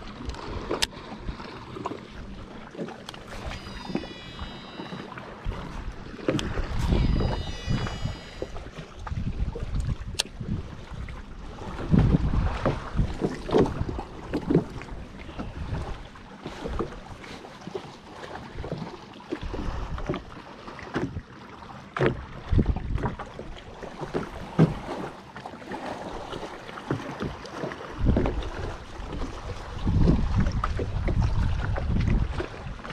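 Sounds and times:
waves slapping against boat hull: 0:00.0 - 0:32.9
wind buffeting microphone: 0:05.4 - 0:17.2, 0:22.2 - 0:23.4, 0:27.9 - 0:32.9.

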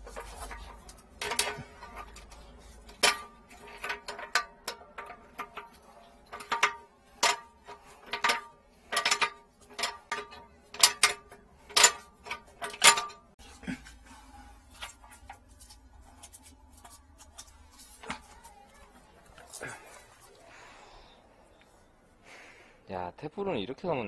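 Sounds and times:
wrench clinking on metal pipes: 0:00.0 - 0:13.5.

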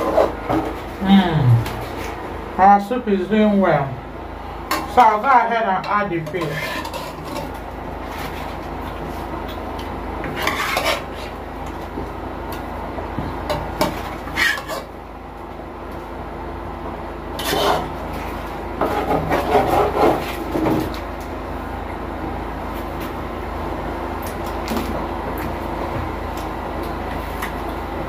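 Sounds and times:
utensil scraping in cooking pot: 0:00.0 - 0:01.0, 0:04.7 - 0:09.5, 0:10.2 - 0:11.8, 0:13.5 - 0:15.0, 0:17.3 - 0:20.6
steady low hum: 0:00.0 - 0:28.0.

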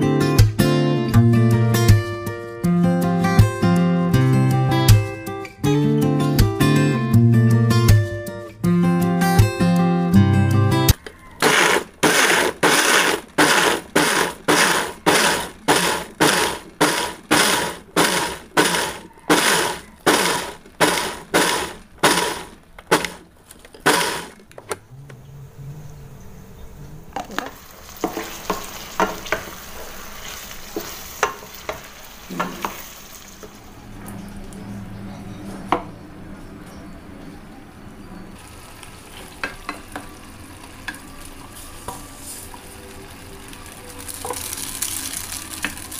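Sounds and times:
electric blender grinding: 0:11.4 - 0:25.2
eggplant sizzling in a pan: 0:27.3 - 0:33.7, 0:38.4 - 0:45.9.

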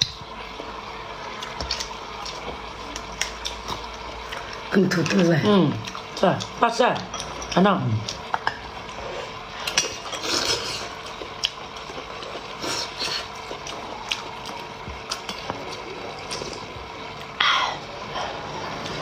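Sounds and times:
slurping broth: 0:08.9 - 0:11.0.

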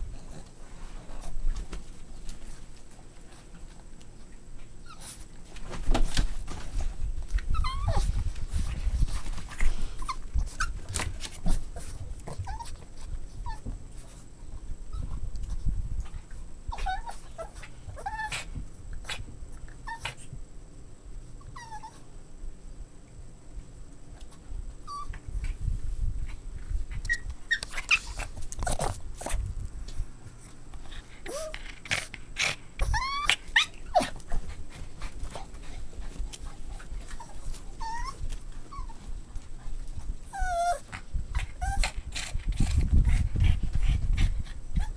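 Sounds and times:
bedding rustling and bumping: 0:00.4 - 0:14.2
puppies whining and yipping: 0:07.4 - 0:08.2, 0:09.8 - 0:10.9, 0:12.3 - 0:13.7, 0:16.7 - 0:18.4, 0:19.8 - 0:20.2, 0:21.4 - 0:22.0, 0:24.9 - 0:25.2, 0:27.0 - 0:28.8, 0:32.8 - 0:34.3, 0:36.8 - 0:39.1, 0:40.2 - 0:41.0, 0:41.6 - 0:42.0.

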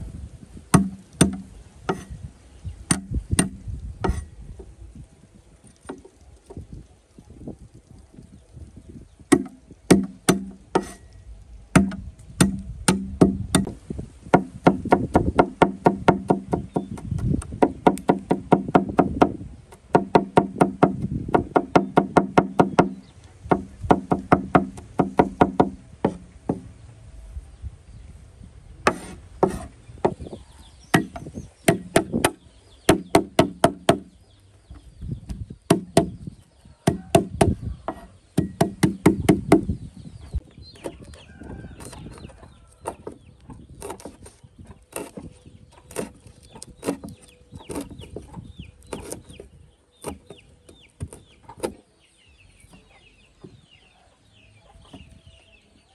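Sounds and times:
knife chopping on wooden board: 0:28.9 - 0:30.3, 0:36.9 - 0:39.6.

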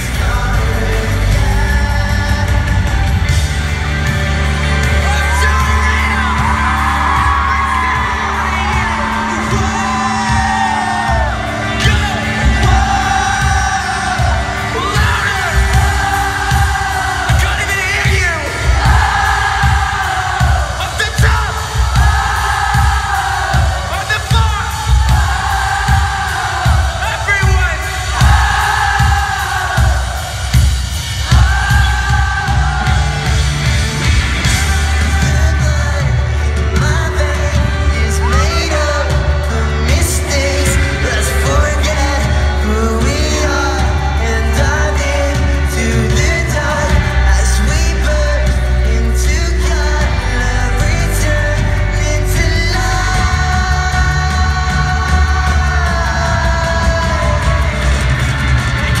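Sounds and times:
drums steady beat: 0:00.0 - 0:59.0
person singing lead vocal: 0:00.0 - 0:59.0
pop-punk band playing live: 0:00.0 - 0:59.0.

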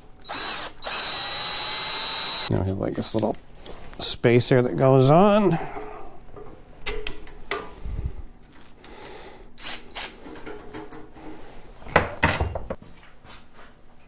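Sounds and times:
metal clinks and knocks: 0:12.0 - 0:12.8.

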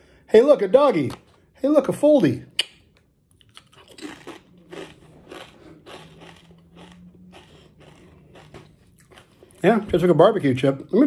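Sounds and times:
person chewing crisp chips: 0:02.6 - 0:09.9.

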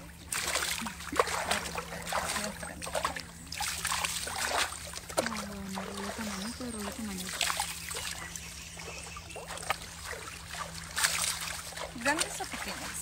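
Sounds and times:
water splashing and pouring: 0:00.0 - 0:08.2, 0:09.4 - 0:13.0.

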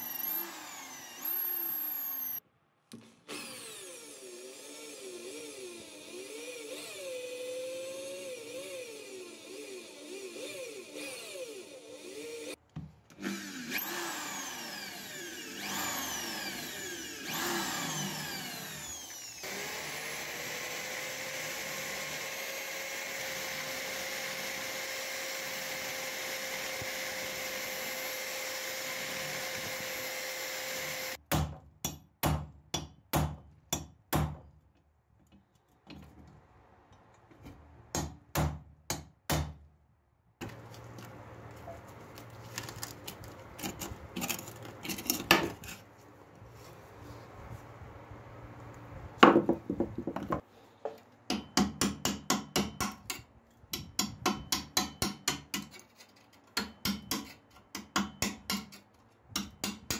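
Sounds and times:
burr bit grinding metal: 0:00.0 - 0:02.4, 0:03.3 - 0:31.2
electric drill boring into steel: 0:00.0 - 0:02.4, 0:03.3 - 0:12.6, 0:13.2 - 0:31.2.

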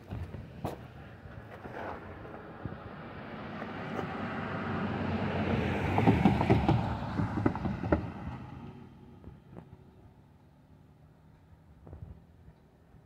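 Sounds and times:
vehicle passing by: 0:00.3 - 0:10.1.

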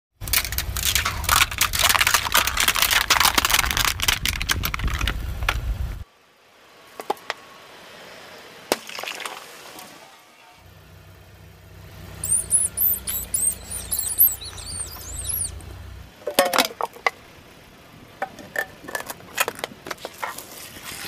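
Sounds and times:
plastic cups cracking under tyre: 0:00.2 - 0:05.6
sharp clicks: 0:12.2 - 0:15.7.

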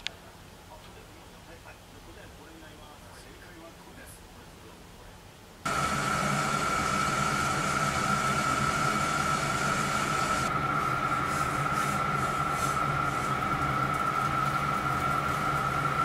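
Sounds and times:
kettle steam hissing: 0:05.7 - 0:16.0.

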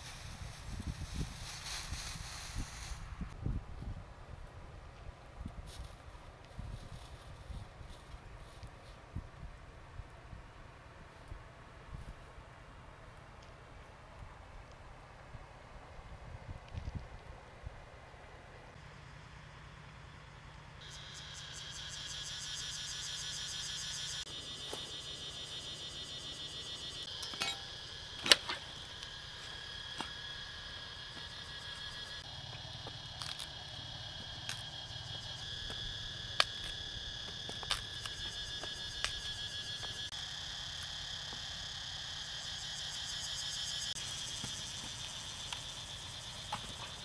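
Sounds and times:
insects chirring: 0:18.7 - 0:47.0.

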